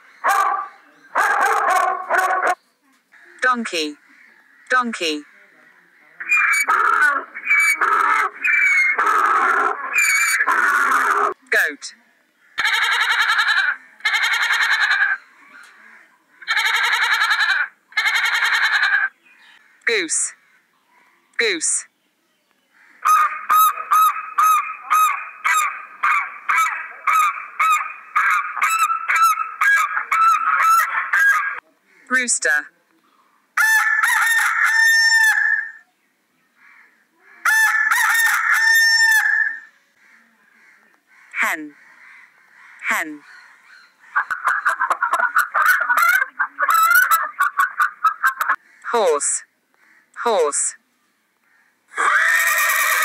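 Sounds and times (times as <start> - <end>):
rooster crowing: 33.6 - 35.8, 37.4 - 39.7.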